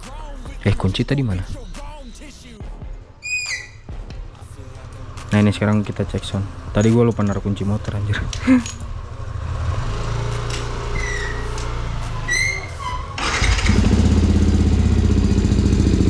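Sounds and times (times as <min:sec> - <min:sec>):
motorcycle engine starting and idling: 0:04.4 - 0:16.0.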